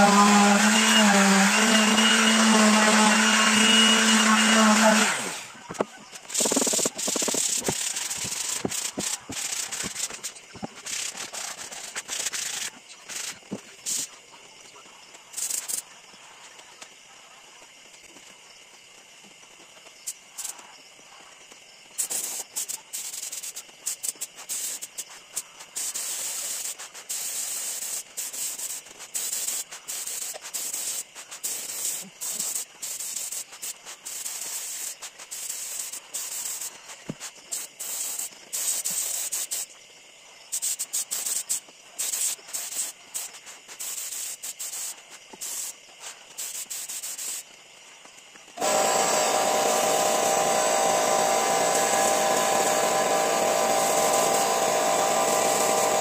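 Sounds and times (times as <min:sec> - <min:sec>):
motor-like sound: 0:00.0 - 0:10.7, 0:48.6 - 0:56.0
spray gun hissing: 0:00.0 - 0:14.1, 0:22.0 - 0:25.1, 0:25.7 - 0:39.7, 0:40.5 - 0:47.5, 0:48.6 - 0:56.0.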